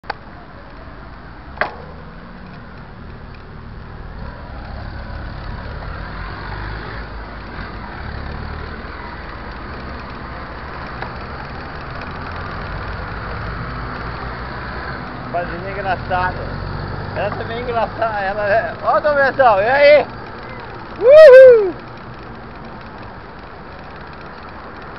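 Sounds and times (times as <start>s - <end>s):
bicycle low rumble: 0.0s - 24.9s
cars passing: 0.3s - 24.9s.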